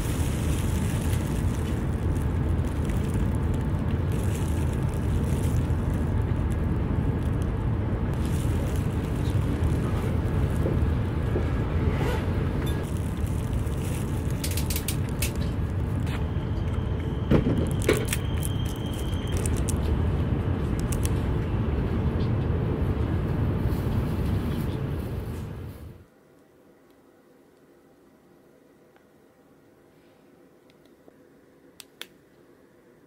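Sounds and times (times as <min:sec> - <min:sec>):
plastic wrapper crinkling: 0:00.0 - 0:07.5, 0:08.2 - 0:10.7, 0:12.8 - 0:16.0, 0:17.7 - 0:19.9
train rumble inside cabin: 0:00.0 - 0:26.0.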